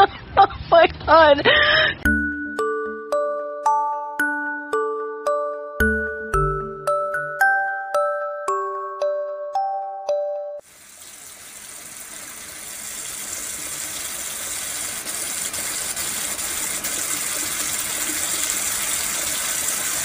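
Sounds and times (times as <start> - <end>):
tap water running into sink: 10.6 - 20.0.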